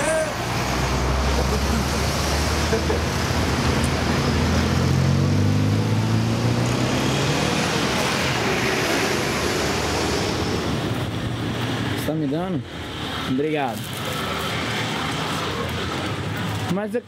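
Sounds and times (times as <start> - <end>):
vehicle engine hum rising in pitch: 0.0 - 11.3
street traffic: 0.0 - 17.0.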